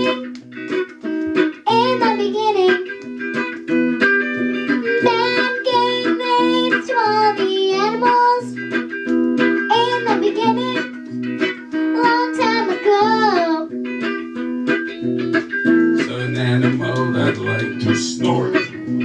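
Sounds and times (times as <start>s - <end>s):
girl singing into a microphone: 0.0s - 0.3s, 1.5s - 3.0s, 4.7s - 8.6s, 9.6s - 11.0s, 11.7s - 13.7s
strummed electric guitar: 0.0s - 19.0s.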